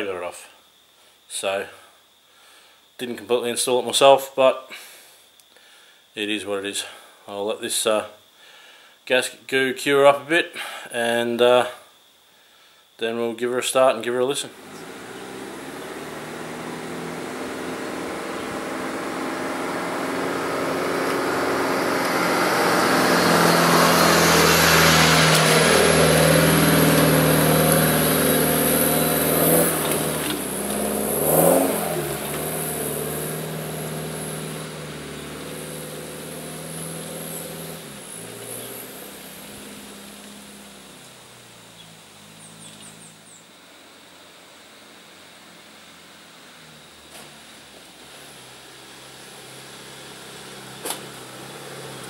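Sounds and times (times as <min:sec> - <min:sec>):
diesel engine driving past: 0:14.5 - 0:43.4, 0:45.6 - 0:52.0.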